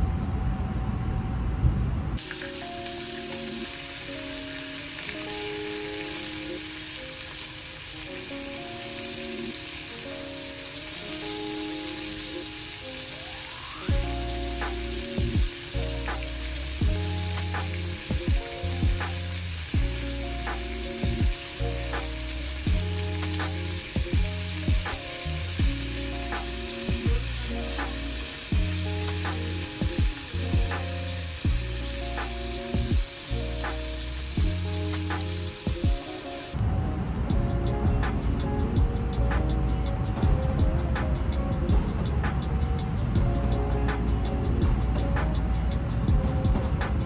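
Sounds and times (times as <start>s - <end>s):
beef sizzling in oil: 2.2s - 36.6s
background music with bass and beat: 2.2s - 47.0s.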